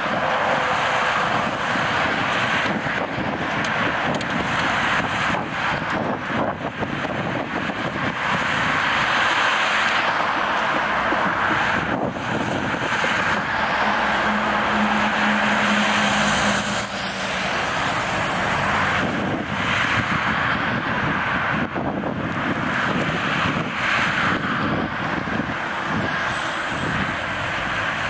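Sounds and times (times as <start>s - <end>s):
city street traffic: 0.0s - 28.0s.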